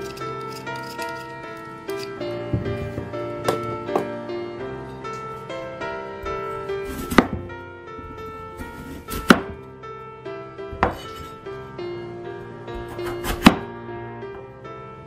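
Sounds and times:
instrumental background music: 0.0s - 15.0s
knife chopping on wooden board: 6.9s - 7.5s, 8.8s - 9.6s, 13.0s - 13.6s.

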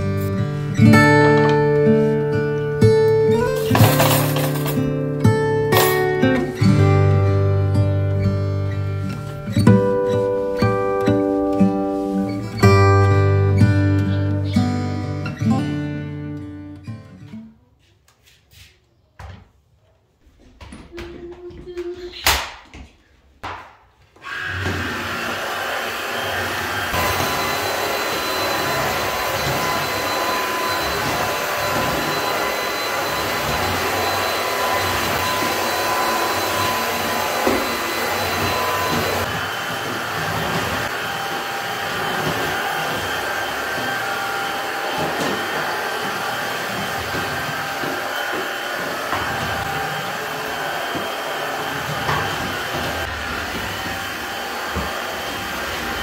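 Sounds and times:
vacuum motor whining: 24.2s - 56.0s.

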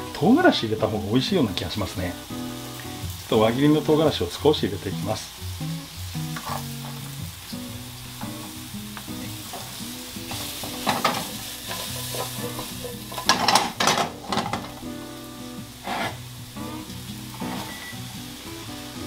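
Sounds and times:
mushrooms sizzling in butter: 0.0s - 19.0s
spatula scraping a pan: 6.3s - 7.1s, 9.4s - 14.8s, 15.8s - 16.3s, 17.3s - 17.9s.

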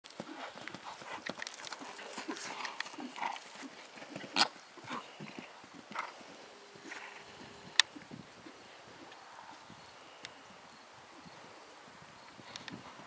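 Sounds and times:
horse hooves on turf: 0.0s - 9.6s.

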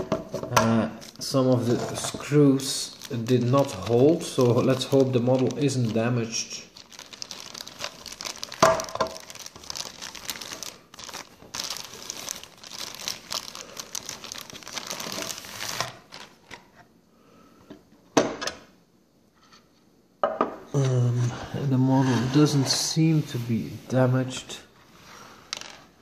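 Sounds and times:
plastic bag crinkling: 1.0s - 16.7s.

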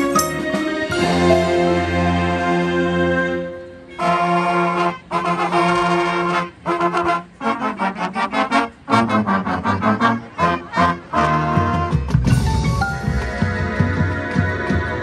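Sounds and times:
brass sustained chords: 0.0s - 12.0s
marching band playing: 0.0s - 15.0s.

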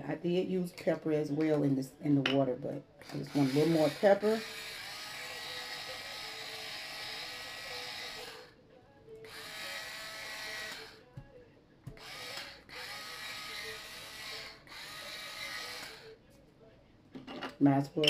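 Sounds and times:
electric pepper grinder whirring: 3.0s - 8.5s, 9.2s - 11.3s, 11.9s - 16.1s.

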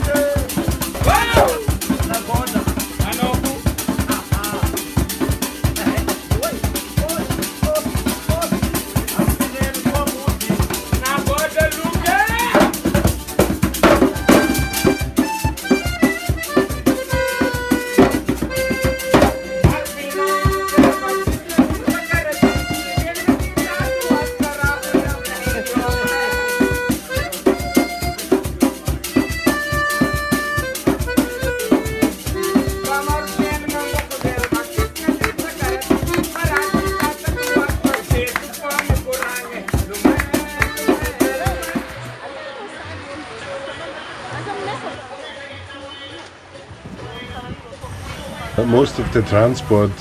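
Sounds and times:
fast steady percussion: 0.0s - 42.1s, 48.6s - 50.0s
accordion playing lively tune: 0.0s - 42.4s.

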